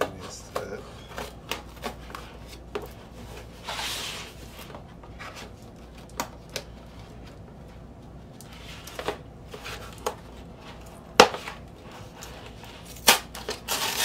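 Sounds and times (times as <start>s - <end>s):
cardboard and tape rustling: 0.0s - 14.0s
scissors snipping packing tape: 12.9s - 14.0s.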